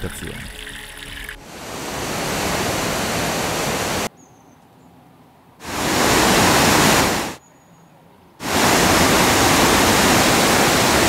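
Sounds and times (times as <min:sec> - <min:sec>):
loud rushing water: 0:01.1 - 0:04.1, 0:05.6 - 0:07.4, 0:08.4 - 0:11.0
faint high chirp: 0:04.1 - 0:05.0, 0:07.4 - 0:08.0.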